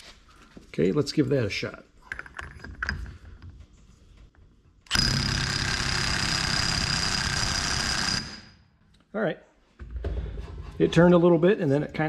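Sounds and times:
impact wrench hammering: 4.9 - 8.5.

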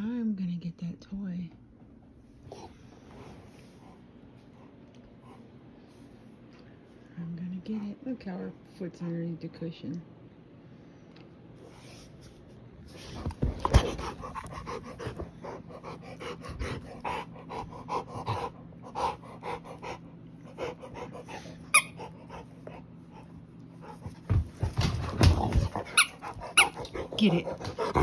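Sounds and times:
dog panting quickly: 12.9 - 24.5, 25.9 - 28.0.

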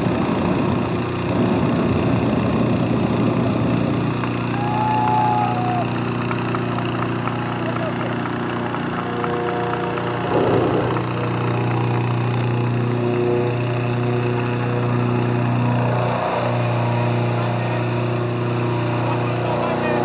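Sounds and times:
small petrol engine running: 0.0 - 20.0
propane burner blast: 10.1 - 12.8.

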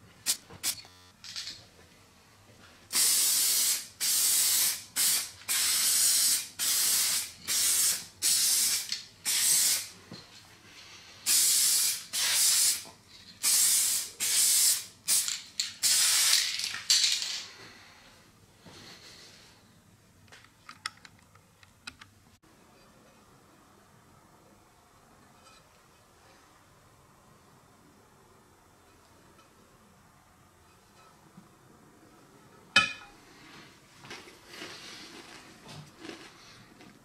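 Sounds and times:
spray paint can hissing: 2.9 - 9.9, 11.3 - 12.8, 13.4 - 16.7.

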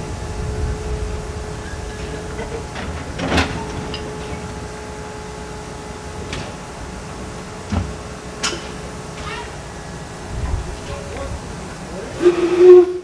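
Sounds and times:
faint constant whine: 0.0 - 13.0
steam train low rumble: 0.0 - 13.0
metallic clanks and knocks: 2.0 - 4.6.

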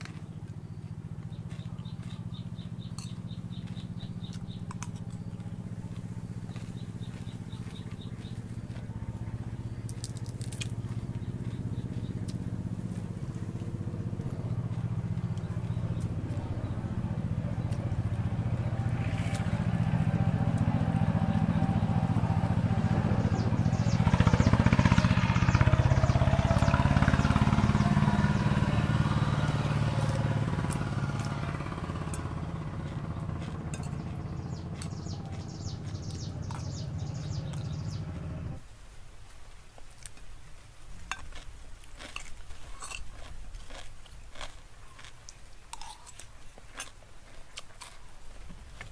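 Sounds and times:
vehicle engine passing by: 0.0 - 38.6.

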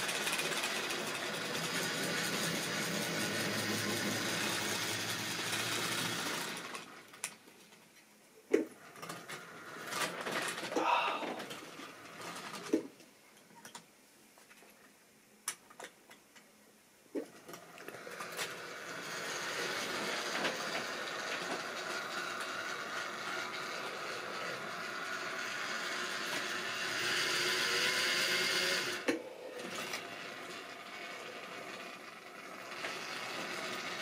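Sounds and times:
wheels rattling over track: 0.0 - 7.2, 17.4 - 34.0
electric motor whirring: 17.9 - 34.0.

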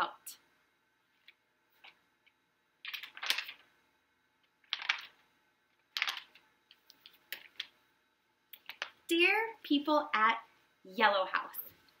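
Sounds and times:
book pages flipping: 2.8 - 3.7, 4.6 - 5.2, 5.9 - 7.7.

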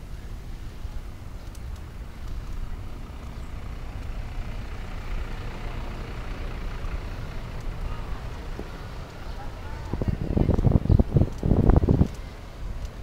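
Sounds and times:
road noise: 0.0 - 13.0
wind rumbling on microphone: 7.4 - 13.0.

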